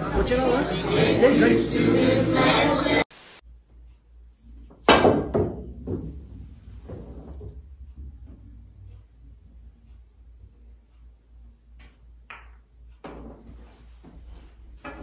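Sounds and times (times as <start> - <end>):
ball knocking off cushions: 4.8 - 7.5
cue striking ball: 4.8 - 7.7, 12.3 - 13.4.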